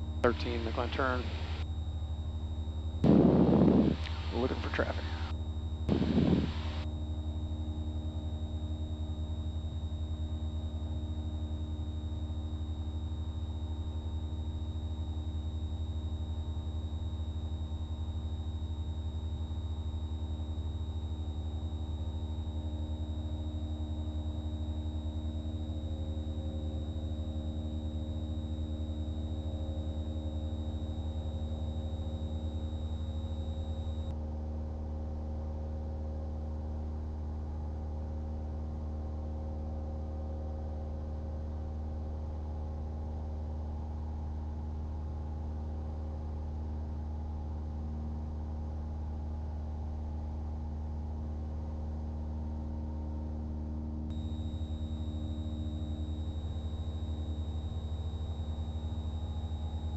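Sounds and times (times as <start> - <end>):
airplane engine and propeller drone: 0.0 - 59.9
faint high whine: 0.0 - 59.9.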